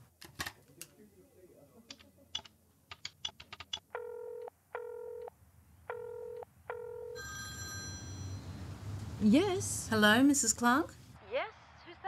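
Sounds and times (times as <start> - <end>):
telephone keypad buttons clicking: 1.9 - 4.0
telephone ringing tone: 3.9 - 5.3, 5.9 - 8.6.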